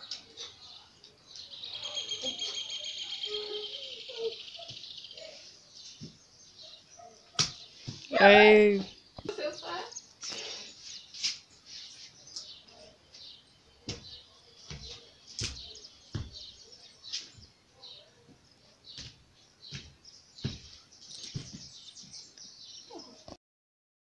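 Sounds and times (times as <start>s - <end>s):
high bird chirps: 1.4s - 18.1s
bare feet thumping on tiles: 7.3s - 8.0s, 13.8s - 17.5s, 18.3s - 21.8s.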